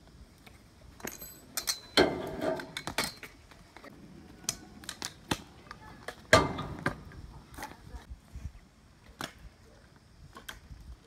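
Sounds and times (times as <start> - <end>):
scooter clanking on metal rail: 1.0 - 3.4.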